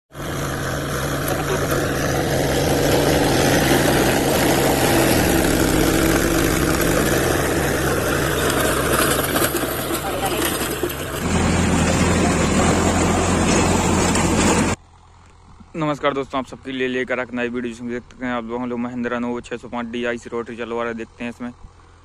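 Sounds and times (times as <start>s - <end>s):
tractor engine under load: 0.1s - 19.5s
rotavator blades churning soil: 0.2s - 14.8s.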